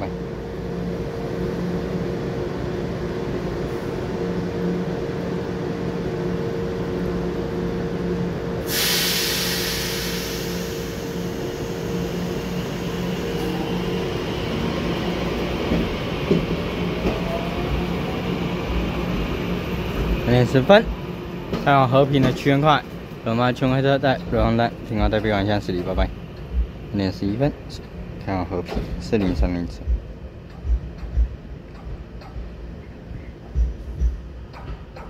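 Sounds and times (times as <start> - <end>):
train electrical hum: 0.0 - 35.0
loud air hiss: 8.6 - 13.5
train clicks: 20.8 - 27.4, 28.2 - 35.0.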